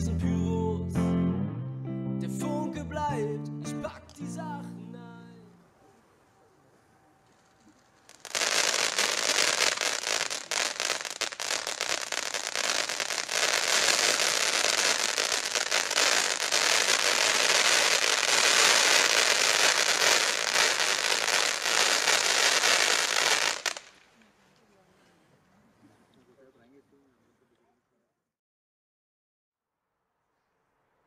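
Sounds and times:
firework fountain hissing and crackling: 7.6s - 24.0s.

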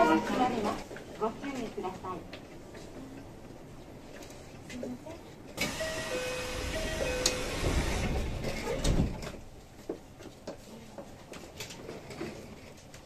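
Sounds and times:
doors shutting thud: 5.6s - 9.4s
sliding doors closing rush: 5.6s - 9.6s
two-note door chime: 5.7s - 8.0s.

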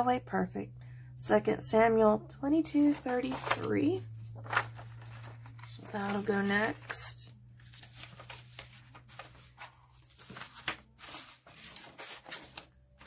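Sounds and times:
paper rustling and sliding: 2.8s - 13.0s.

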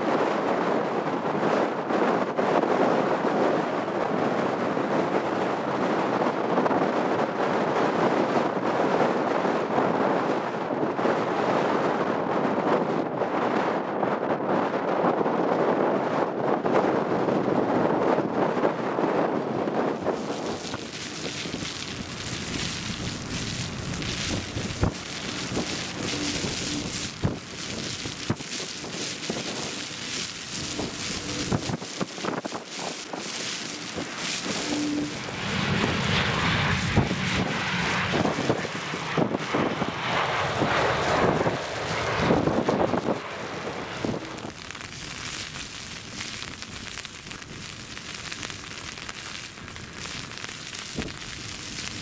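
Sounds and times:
wind buffeting microphone: 0.0s - 52.0s
jet engines rushing: 17.0s - 47.0s
heavy rain: 19.7s - 52.0s
tyre spray on wet runway: 20.0s - 52.0s.

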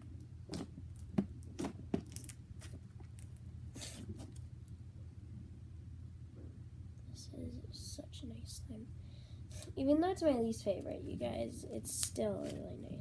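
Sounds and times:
slime squishing: 0.4s - 4.5s.

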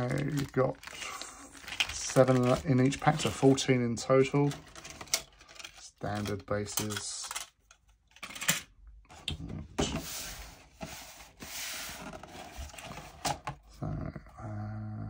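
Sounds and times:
packaging rustling: 0.0s - 8.5s, 10.0s - 13.6s.

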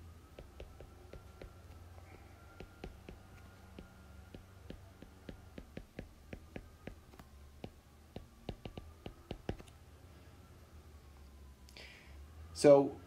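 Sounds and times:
stylus tapping on tablet screen: 0.0s - 9.7s
low steady hum: 0.0s - 13.0s.

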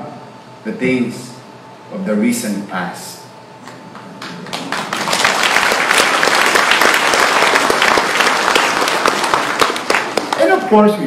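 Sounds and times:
audience applauding: 4.2s - 10.8s.

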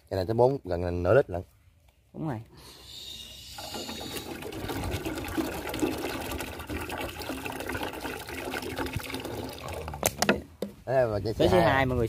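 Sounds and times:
drinks trickling in glass jar: 2.9s - 10.2s.

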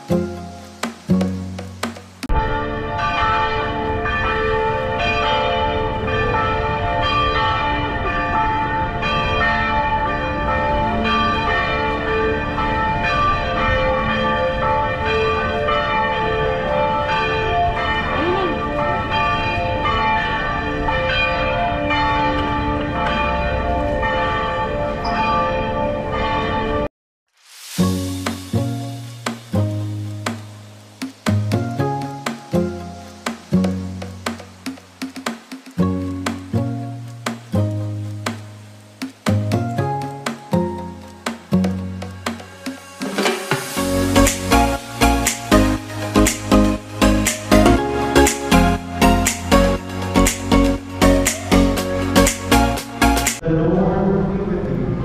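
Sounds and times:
church bells pealing: 2.3s - 26.9s.

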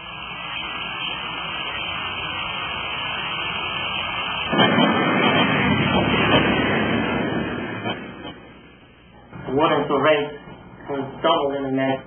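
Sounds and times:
steady hiss: 0.0s - 12.0s.

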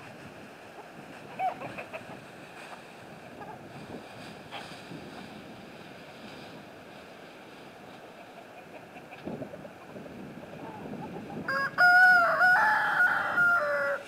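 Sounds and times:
wind noise on microphone: 0.0s - 8.0s, 9.0s - 14.0s
faint chicken sounds: 0.6s - 5.4s, 7.9s - 14.0s.

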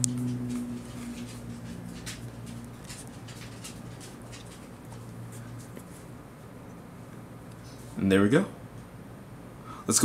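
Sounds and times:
low hum: 0.0s - 7.8s.

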